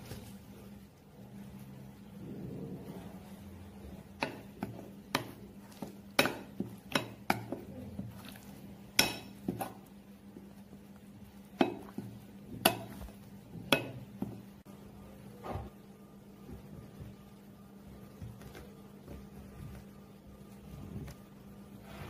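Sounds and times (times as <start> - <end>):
spoon stirring thick paste: 2.8 - 14.7.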